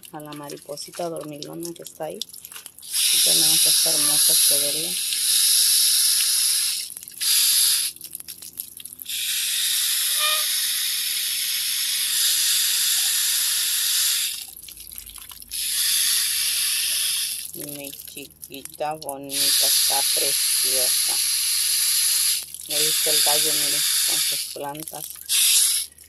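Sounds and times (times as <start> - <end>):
water spray hissing: 2.8 - 8.0, 9.1 - 14.5, 15.5 - 17.9, 19.3 - 26.0.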